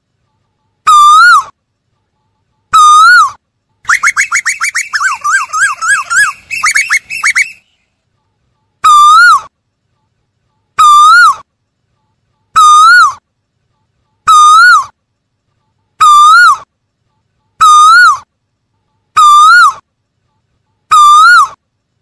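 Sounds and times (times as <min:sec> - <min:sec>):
koel calling: 0:02.8 - 0:07.6, 0:10.8 - 0:11.4, 0:12.6 - 0:13.2, 0:14.2 - 0:14.9, 0:17.6 - 0:18.3, 0:19.2 - 0:19.8, 0:20.9 - 0:21.6.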